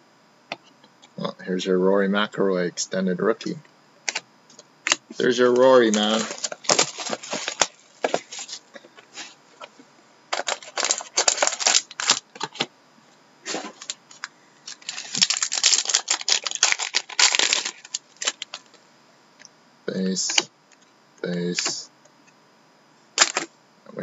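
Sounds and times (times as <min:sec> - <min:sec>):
plastic wrapper tearing and crumpling: 0:04.9 - 0:08.6, 0:10.3 - 0:12.6, 0:13.7 - 0:18.6.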